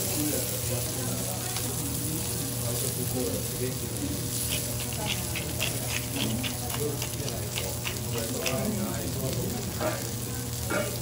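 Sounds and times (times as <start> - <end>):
steak sizzling on a griddle: 0.0 - 11.0
fat crackling and popping: 4.0 - 11.0.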